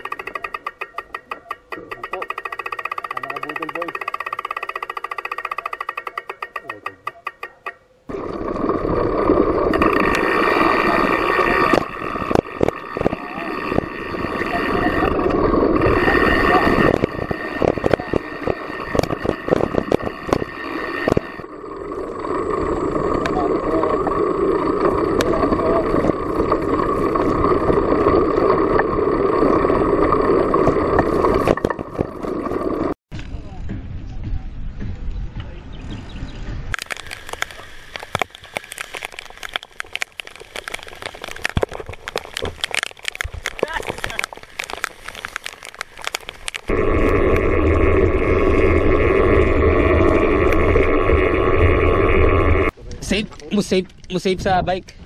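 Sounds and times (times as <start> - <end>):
bike knocking and rattling: 0.0 - 7.9, 9.7 - 21.5, 36.8 - 46.7
wind and tyre noise: 8.0 - 55.0
rain striking camera: 8.1 - 21.5, 36.7 - 52.7
low rumble: 46.5 - 52.8.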